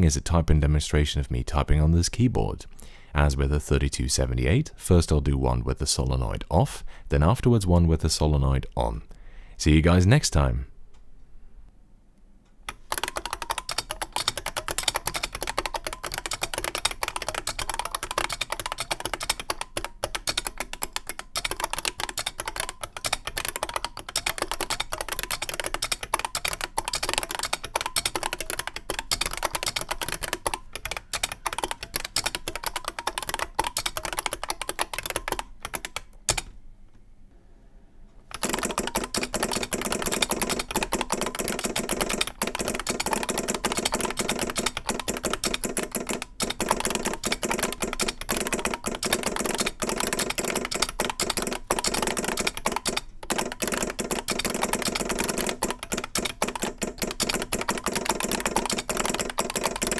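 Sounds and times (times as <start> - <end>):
keyboard switches clicking: 12.7 - 36.5, 38.3 - 59.9.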